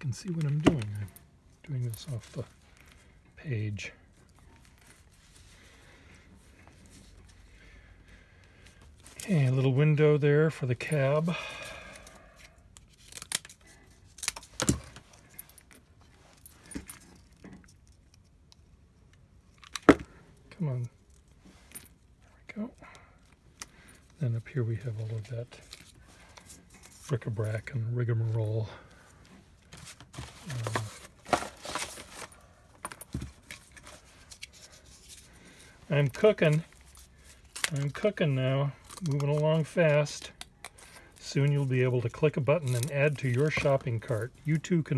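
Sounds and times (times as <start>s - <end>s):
paper and cardboard rustling: 29.6s - 44.6s.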